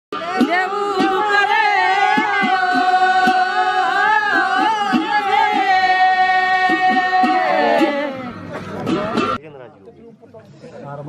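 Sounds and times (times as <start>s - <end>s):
regular low beat: 0.1s - 9.4s
women singing folk song: 0.2s - 8.3s.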